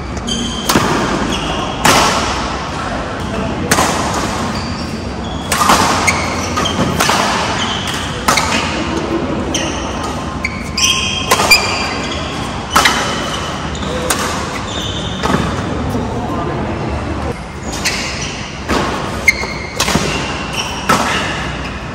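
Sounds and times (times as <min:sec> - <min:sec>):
court shoes squeaking: 0:00.0 - 0:16.4, 0:17.0 - 0:21.9
racket striking shuttlecock: 0:00.2 - 0:02.5, 0:03.2 - 0:04.6, 0:05.4 - 0:09.2, 0:11.0 - 0:12.1, 0:12.7 - 0:15.6, 0:17.8 - 0:21.8.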